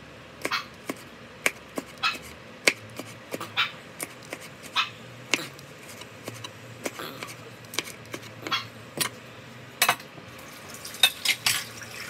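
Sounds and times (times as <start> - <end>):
knife chopping on cutting board: 0.4 - 9.1.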